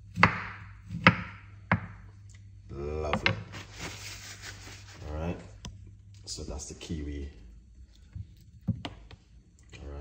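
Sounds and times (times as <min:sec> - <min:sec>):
knife striking chopping board: 0:00.1 - 0:02.0.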